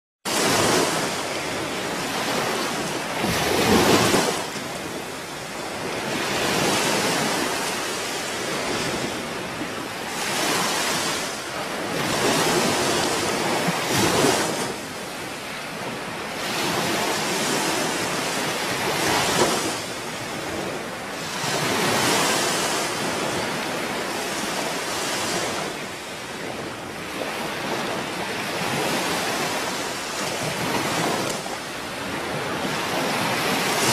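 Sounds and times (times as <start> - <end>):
wind: 0.2 - 33.9
sea surf breaking on shore: 0.3 - 33.9.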